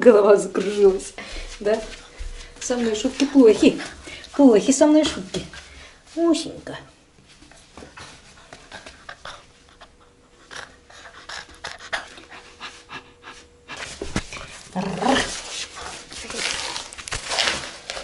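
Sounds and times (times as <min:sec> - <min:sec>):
paws clicking on linoleum floor: 0:00.3 - 0:05.8, 0:07.2 - 0:18.0
puppy panting: 0:07.9 - 0:16.1.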